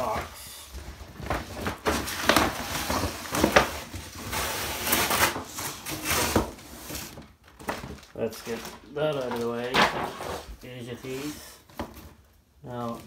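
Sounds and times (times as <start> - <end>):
paper tearing off a box: 1.8 - 7.8.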